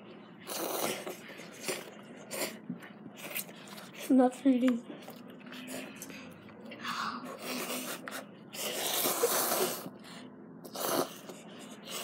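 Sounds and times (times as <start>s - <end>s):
child slurping noodles: 0.4s - 2.6s, 7.2s - 10.0s, 10.6s - 12.0s.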